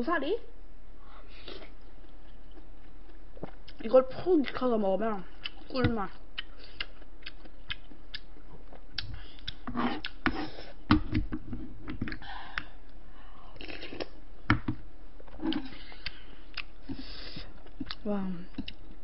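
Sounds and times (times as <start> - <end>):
chewing and mouth clicks: 1.4 - 3.8, 5.3 - 5.7, 6.4 - 10.2, 15.3 - 17.0, 17.6 - 19.0.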